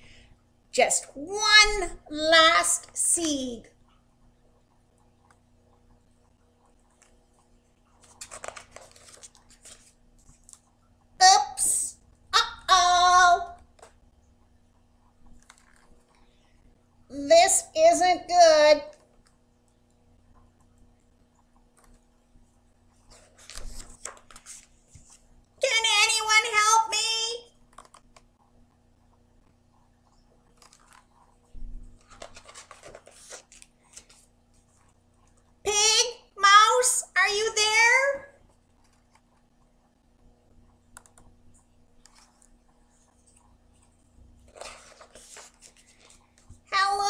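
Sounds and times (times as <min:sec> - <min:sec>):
faint steady hum: 0:00.0 - 0:47.0
faint paper clicks: 0:06.2 - 0:10.7, 0:23.1 - 0:25.2, 0:27.6 - 0:28.4, 0:29.4 - 0:31.3, 0:32.0 - 0:35.4, 0:40.6 - 0:43.9, 0:44.5 - 0:46.6
book being handled: 0:06.8 - 0:10.7, 0:15.2 - 0:16.3, 0:23.0 - 0:25.3, 0:30.4 - 0:35.0, 0:42.0 - 0:46.7
page turning rustle: 0:07.9 - 0:10.7, 0:15.4 - 0:16.0, 0:23.0 - 0:25.3, 0:30.4 - 0:31.2, 0:31.9 - 0:34.9, 0:42.0 - 0:46.6.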